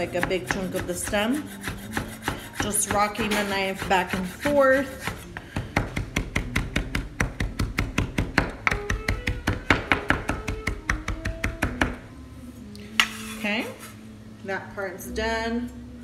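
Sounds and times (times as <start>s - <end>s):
knife chopping on wooden board: 0.0s - 12.0s.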